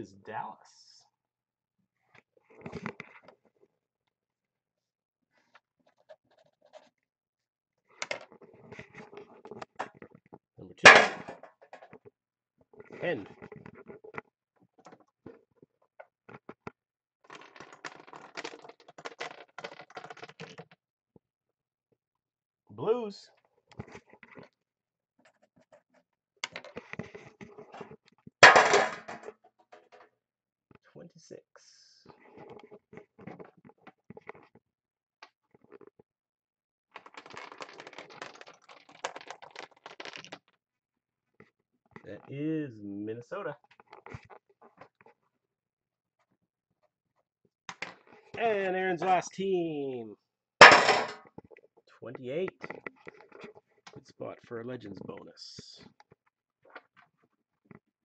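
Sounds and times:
disc clattering down pegs: 10.9s - 11.8s, 28.4s - 29.3s, 50.6s - 51.2s
puck clattering on pegs: 10.9s - 12.0s, 17.3s - 20.8s, 26.4s - 30.0s, 37.0s - 40.5s, 50.6s - 51.6s.

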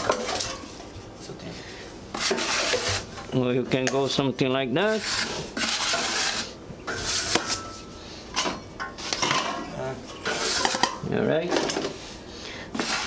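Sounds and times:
putty knife scraping compound: 2.1s - 3.1s, 4.9s - 7.6s, 10.2s - 10.8s, 12.7s - 13.0s.

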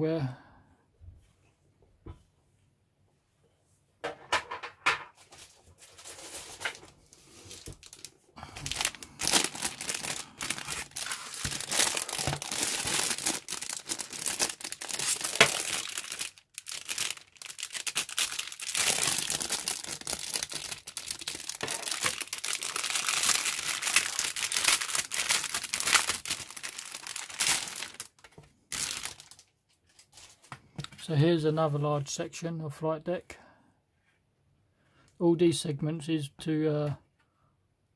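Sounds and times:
plastic bag crinkling: 5.8s - 30.5s.

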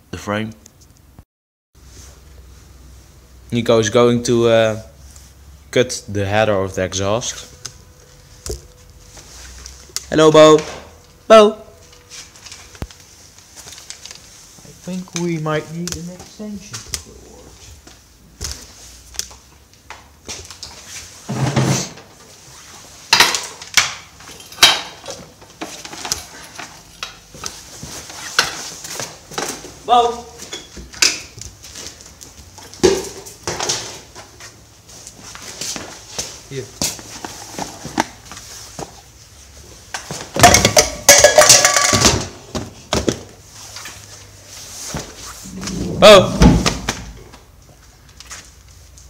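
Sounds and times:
metal objects clanking: 40.4s - 42.4s.

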